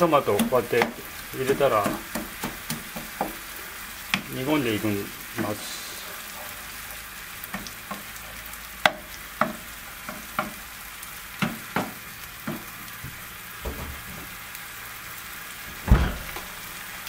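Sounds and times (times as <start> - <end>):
sauce sizzling in a frying pan: 0.0 - 15.7, 16.5 - 17.0
wooden spatula scraping a pan: 5.4 - 8.5.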